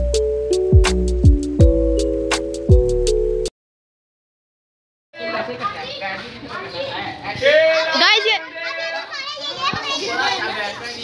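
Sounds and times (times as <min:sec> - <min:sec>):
music with bass and ticking beat: 0:00.0 - 0:03.5.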